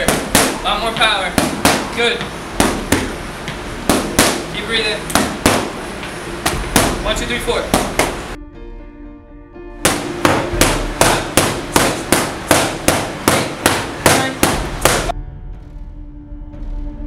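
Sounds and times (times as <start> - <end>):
boxing gloves striking pads: 0.0 - 8.2, 9.8 - 15.1
quiet background music: 6.4 - 17.0.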